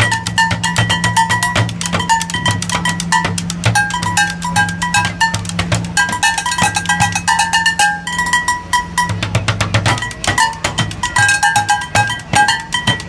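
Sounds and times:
fast drumming on plastic jugs: 0.0s - 13.0s
ringing metallic tones: 0.0s - 13.0s.

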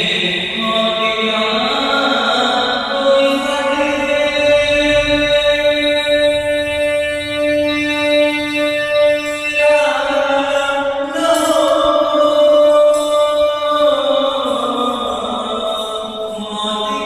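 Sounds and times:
man singing unaccompanied: 0.0s - 17.0s.

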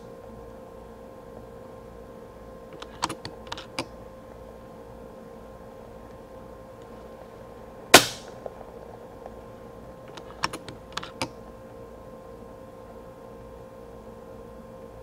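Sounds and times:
air rifle shot with ring: 8.0s - 8.4s.

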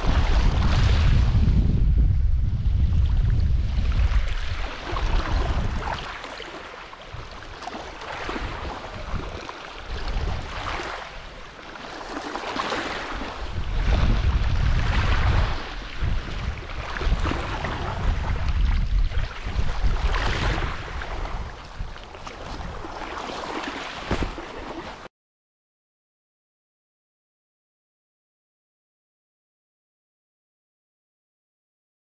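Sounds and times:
small waves washing ashore: 0.0s - 1.5s, 2.8s - 25.1s
wind buffeting microphone: 0.0s - 25.1s.

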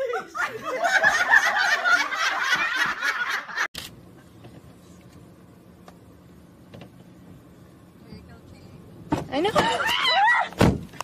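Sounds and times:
group laughing and shrieking: 0.0s - 3.7s, 9.5s - 10.6s
faint car interior hum: 1.8s - 11.0s.

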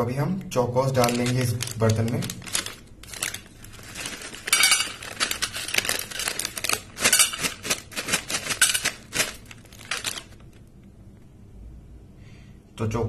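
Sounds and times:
cereal rattling into metal bowl: 0.9s - 10.4s.

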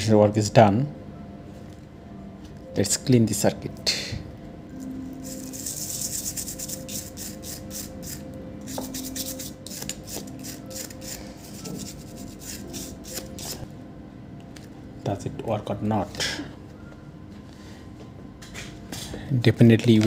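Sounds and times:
cotton swab scrubbing circuit board: 5.2s - 13.6s.

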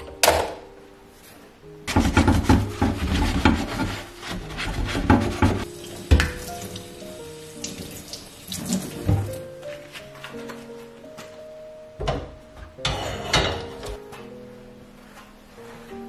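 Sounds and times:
background music: 0.0s - 16.0s
brush scrubbing metal grate: 1.9s - 9.1s.

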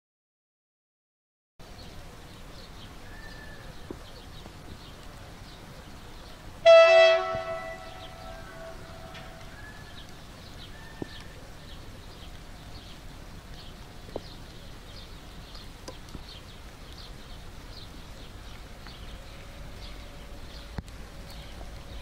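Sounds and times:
bird chirping: 1.8s - 13.0s
distant diesel locomotive rumble: 6.4s - 10.6s, 18.4s - 22.0s
train horn: 6.6s - 9.5s.

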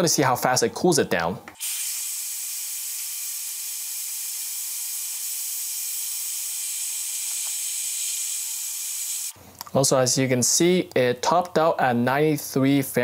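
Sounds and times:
hair dryer blowing air: 1.6s - 9.4s.

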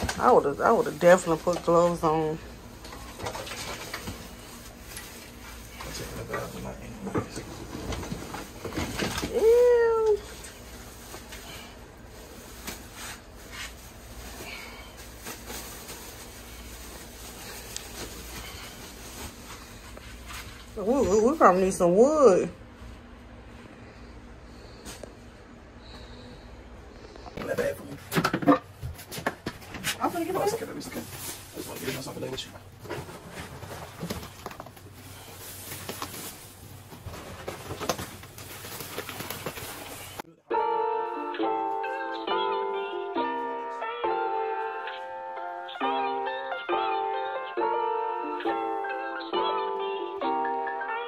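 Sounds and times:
insulation rustling and crinkling: 0.0s - 25.9s, 26.8s - 40.3s
plastic bag rustles: 2.7s - 21.8s, 29.9s - 40.3s
steady low hum: 10.2s - 40.4s.

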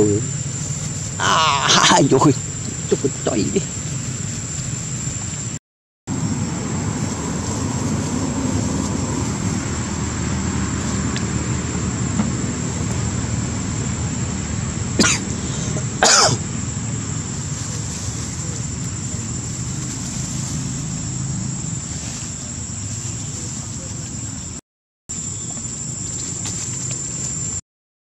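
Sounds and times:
outdoor background noise: 0.0s - 27.6s
cough-like bursts: 15.0s - 16.4s.

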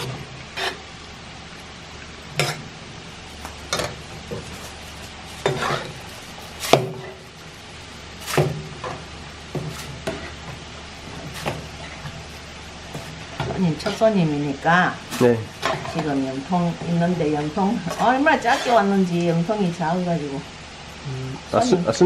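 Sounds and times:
metal ladle scraping a pan: 0.0s - 0.8s, 3.7s - 7.4s, 9.5s - 14.2s, 15.0s - 16.3s, 17.6s - 19.0s
sauce simmering: 0.0s - 21.5s.

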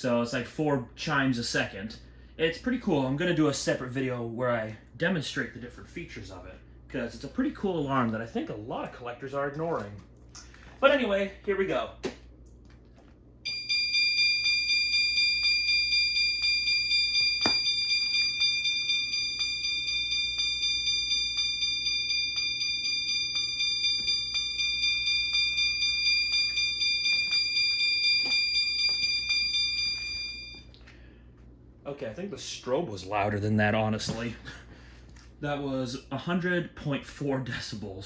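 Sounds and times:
electronic chime ringing: 13.4s - 30.7s.

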